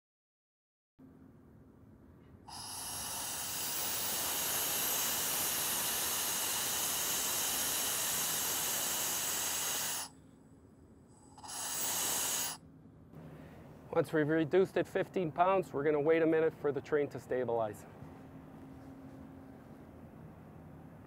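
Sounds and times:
compressed air hissing from valve: 2.5 - 10.2, 11.1 - 12.6.

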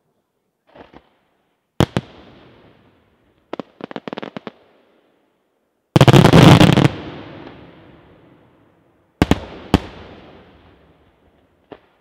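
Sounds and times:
fireworks bursting: 6.0 - 8.2, 9.2 - 12.0.

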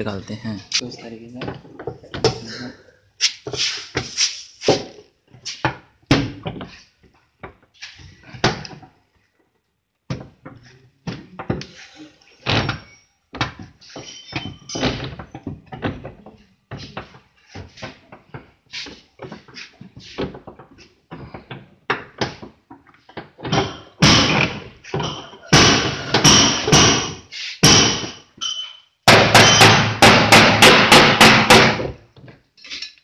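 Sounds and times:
sharp knocks on car fender: 23.5 - 24.7, 29.1 - 32.0.

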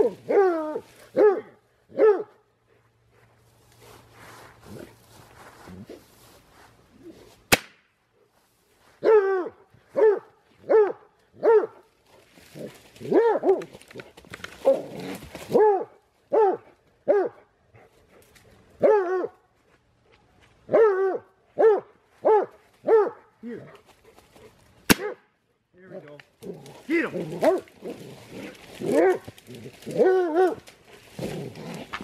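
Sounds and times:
dog barking: 1.1 - 2.4, 9.0 - 11.8, 15.5 - 17.5, 18.8 - 19.4, 20.7 - 23.8, 25.0 - 25.3, 27.4 - 27.7
sharp crack: 7.5 - 8.0, 24.9 - 25.3.

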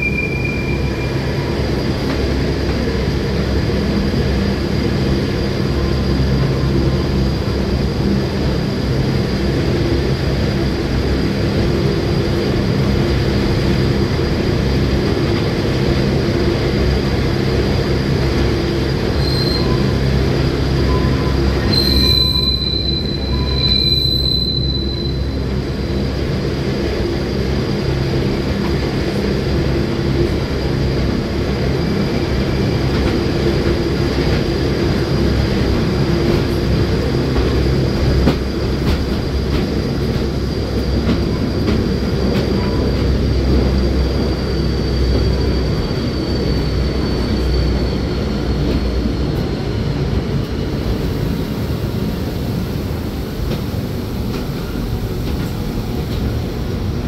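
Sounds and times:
train wheels squealing: 0.0 - 3.1, 16.8 - 57.0.

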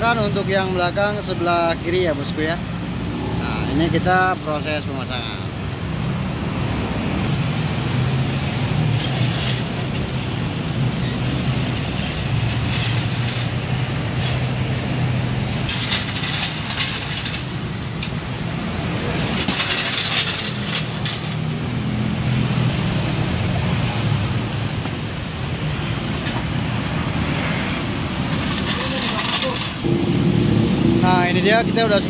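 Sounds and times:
metallic clinking of wheel nuts: 15.7 - 18.2, 19.1 - 21.5, 28.3 - 30.0.

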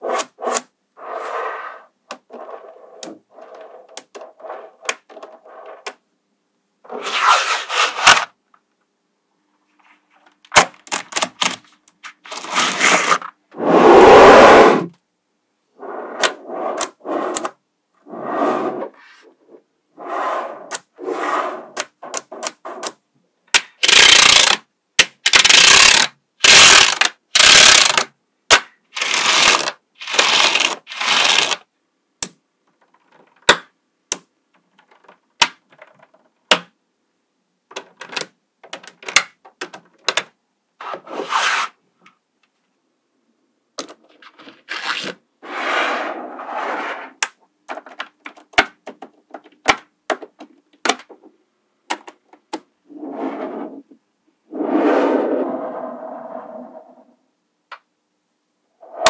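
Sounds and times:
magnetic balls rattling and scraping: 0.0 - 6.0
magnetic balls clicking: 21.8 - 28.1.

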